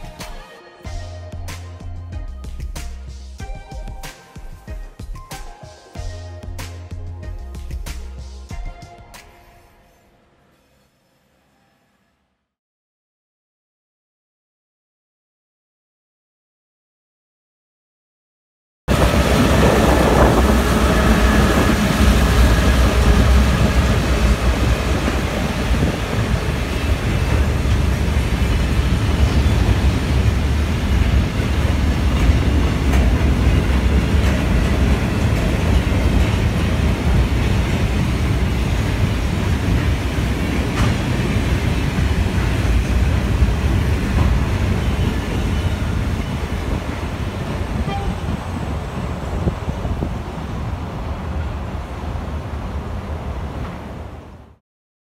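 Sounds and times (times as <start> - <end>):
diesel locomotive engine: 18.9 - 54.6.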